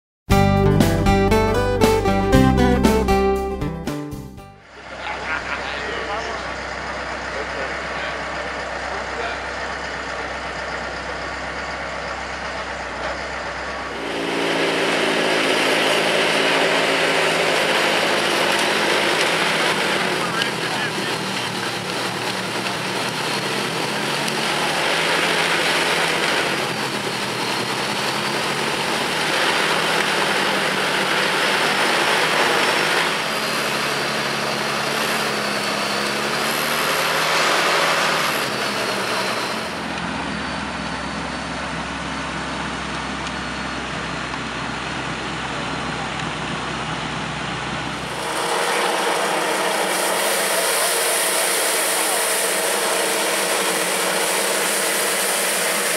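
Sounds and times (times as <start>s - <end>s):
diesel tractor engine under load: 4.6s - 55.9s
snow blower throwing snow: 13.8s - 40.2s, 47.6s - 55.9s
sweeper brush on pavement: 48.0s - 55.9s.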